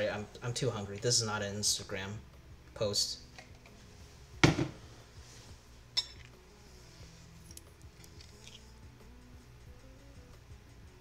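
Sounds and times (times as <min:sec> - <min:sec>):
dishes and utensils clattering: 0:06.0 - 0:06.3.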